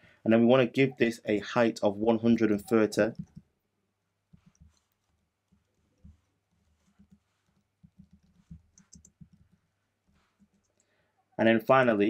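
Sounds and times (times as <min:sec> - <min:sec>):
typing on keyboard: 0:07.0 - 0:09.6.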